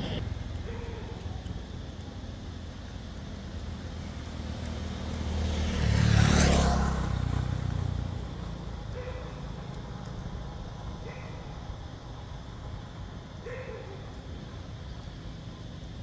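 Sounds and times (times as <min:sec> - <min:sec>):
motor vehicle passing by: 0:04.0 - 0:09.9.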